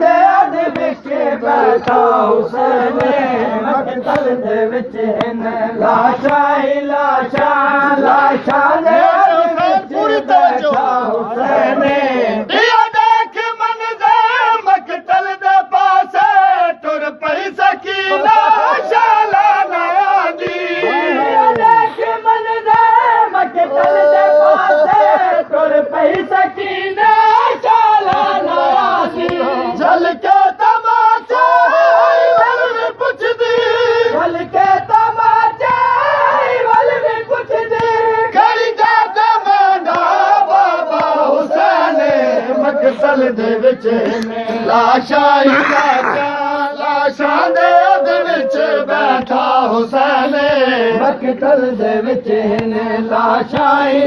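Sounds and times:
group of voices chanting lament: 0.0s - 54.0s.

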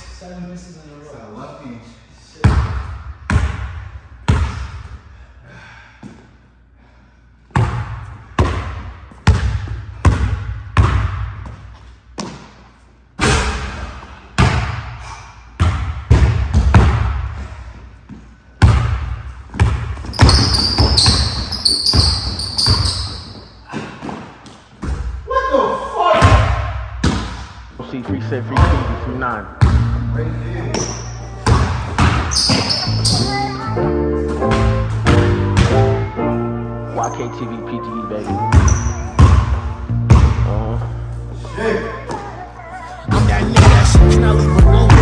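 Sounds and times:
basketball bouncing on hardwood floor: 2.4s - 4.6s, 7.5s - 12.4s, 15.6s - 17.2s, 18.6s - 23.4s, 29.6s - 29.9s, 30.7s - 33.4s, 34.4s - 35.9s, 38.4s - 40.5s
sneakers squeaking on hardwood: 19.5s - 25.1s, 30.6s - 33.6s, 38.2s - 40.4s.

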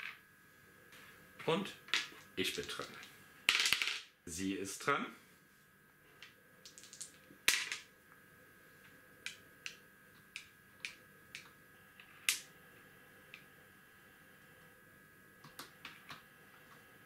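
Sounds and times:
dice clattering on wooden board: 2.0s - 4.1s, 6.6s - 7.9s.

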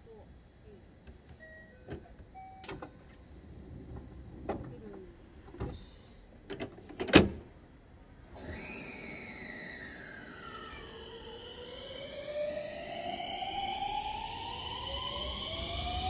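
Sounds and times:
train doors sliding shut: 1.1s - 7.6s, 8.3s - 12.4s
train motors whining: 8.2s - 16.0s.

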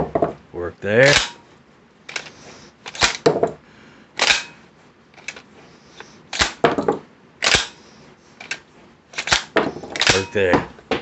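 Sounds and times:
shotgun slide clacking: 2.1s - 2.3s, 2.9s - 3.2s, 4.2s - 4.6s, 7.4s - 7.8s, 8.4s - 10.3s.

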